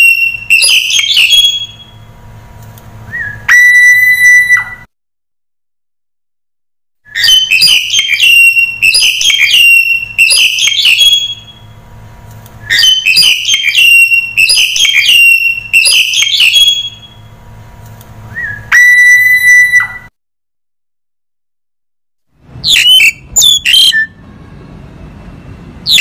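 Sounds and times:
starling whistling calls: 0.0s - 2.0s, 3.1s - 4.9s, 7.1s - 11.7s, 12.6s - 17.2s, 18.3s - 20.1s, 22.6s - 24.2s.

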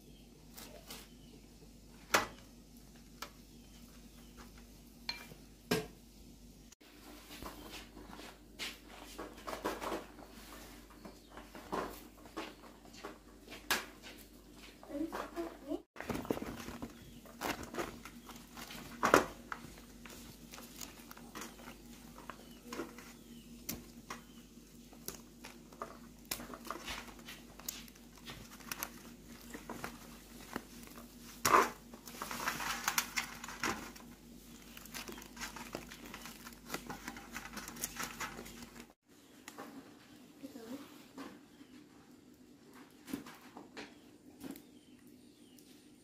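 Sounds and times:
leaves rustling and crinkling: 14.9s - 39.0s.

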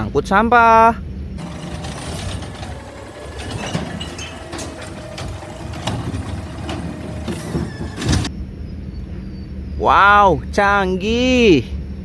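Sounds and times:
truck engine idling: 1.4s - 8.3s.

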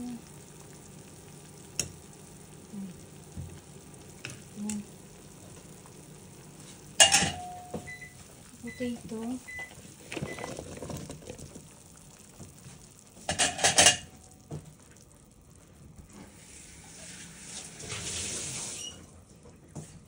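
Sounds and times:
kitchenware clattering: 7.0s - 7.9s, 13.2s - 14.1s.

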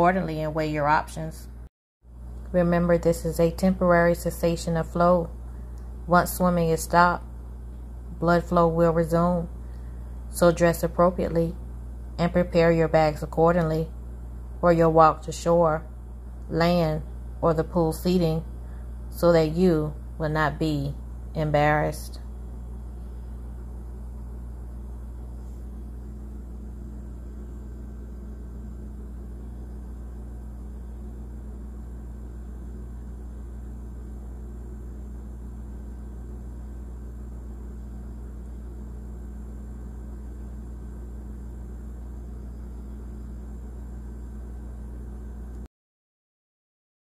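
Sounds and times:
steady low hum: 0.0s - 45.7s.

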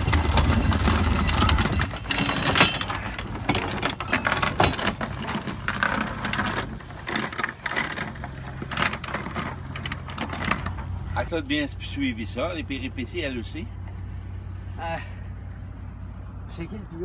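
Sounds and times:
anchor chain clanking: 0.0s - 11.0s.

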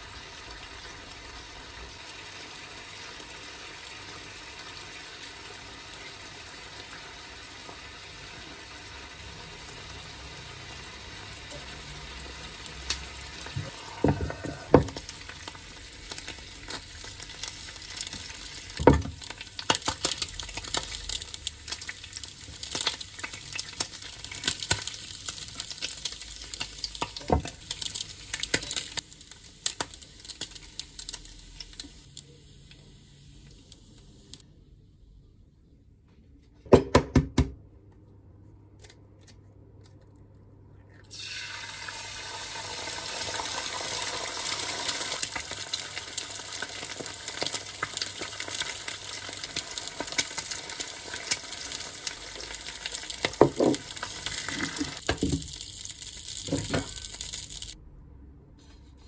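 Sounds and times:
hot oil crackling and popping: 0.0s - 34.4s, 41.1s - 57.8s
meat sizzling in oil: 0.0s - 34.4s, 41.1s - 57.8s
knocks against a pan: 36.7s - 37.6s.

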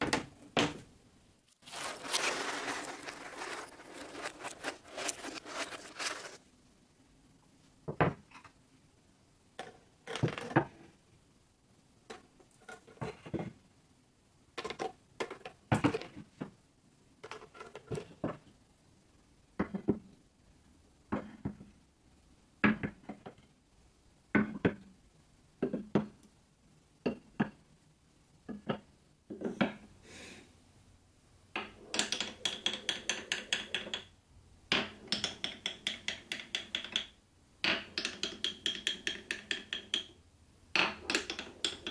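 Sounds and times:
marbles clicking down wooden channels: 31.6s - 34.1s, 34.7s - 40.2s, 40.8s - 41.9s
marbles knocking on wood: 34.7s - 40.2s.

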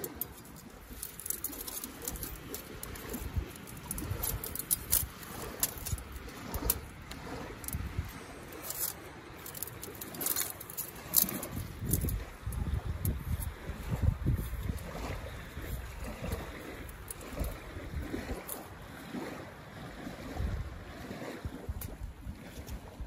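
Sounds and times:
metal-on-metal ticks: 0.0s - 7.8s, 8.6s - 13.5s
wind rumble on microphone: 0.0s - 23.0s.

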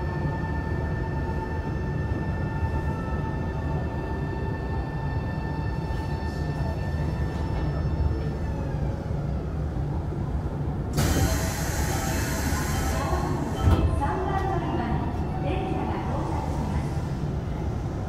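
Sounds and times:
electric train inverter whine: 0.0s - 18.0s
wheels rumbling on rail: 0.0s - 18.0s
loud hiss: 11.0s - 13.5s.

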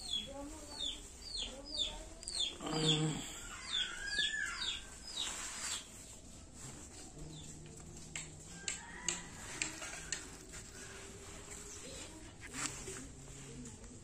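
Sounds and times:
chick peeping: 0.0s - 6.1s.

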